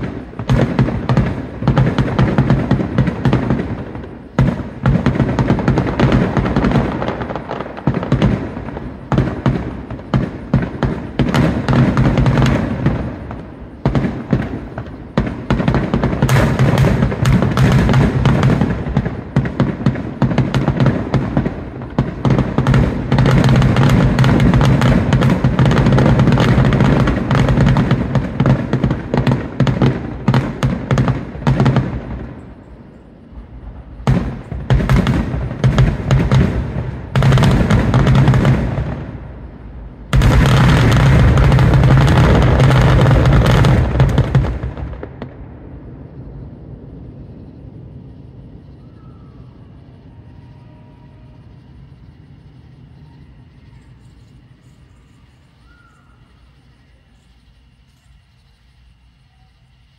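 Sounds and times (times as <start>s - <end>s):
firework shell bursts and crackle: 0.0s - 47.5s.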